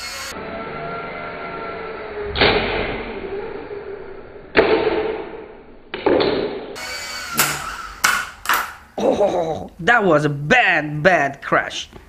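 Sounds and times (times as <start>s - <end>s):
toy helicopter motor whining: 0.0s - 2.3s, 6.8s - 8.1s.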